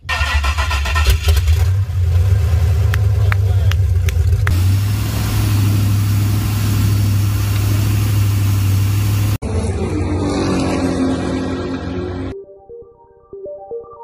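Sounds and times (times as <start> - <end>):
wind: 0.0 - 12.4
boat engine drone: 1.3 - 12.4
rushing water: 1.5 - 9.4
rising tones: 4.5 - 12.4.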